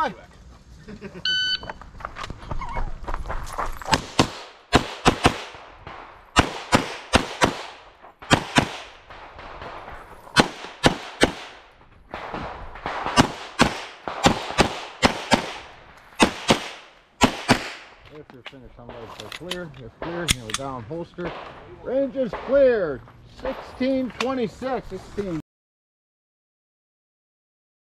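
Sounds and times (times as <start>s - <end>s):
carbine gunshots with echo: 4.0s - 18.0s, 20.0s - 22.8s.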